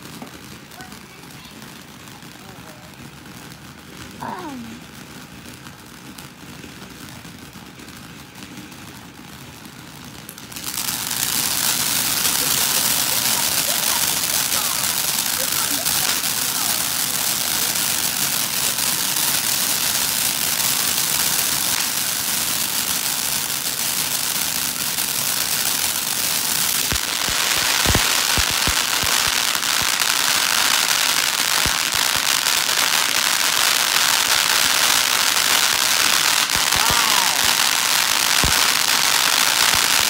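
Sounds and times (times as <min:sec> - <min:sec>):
sharp firework pops: 0:00.0 - 0:00.9, 0:25.1 - 0:40.0
fountain firework hissing and crackling: 0:00.0 - 0:40.0.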